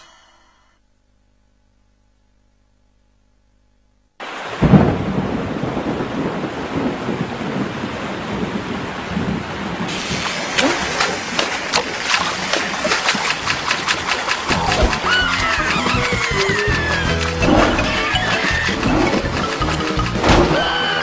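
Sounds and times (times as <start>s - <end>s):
heavy rain: 4.2s - 21.0s
thunderclap: 4.5s - 11.4s
sharp drips and splashes: 9.9s - 20.3s.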